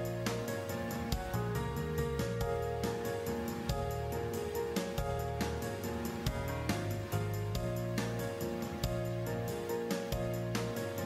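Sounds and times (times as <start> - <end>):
background music with quick beat: 0.0 - 11.0.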